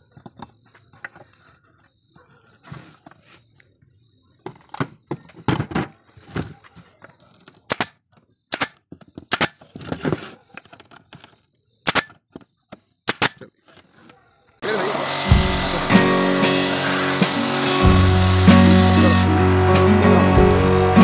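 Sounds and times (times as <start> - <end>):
pneumatic nailer snapping: 7.7 - 9.6, 11.8 - 12.2, 13.1 - 13.5, 14.6 - 19.3.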